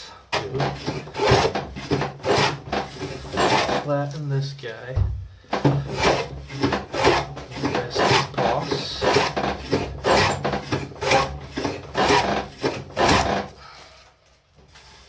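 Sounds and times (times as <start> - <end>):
hand plane rasping on wood: 0.4 - 4.0, 5.6 - 13.6.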